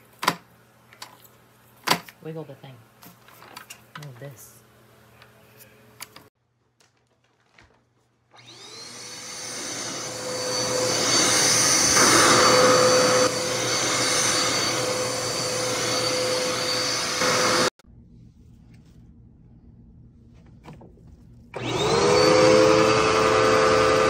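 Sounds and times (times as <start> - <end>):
vacuum cleaner motor whine: 8.3 - 17.7, 21.6 - 24.0.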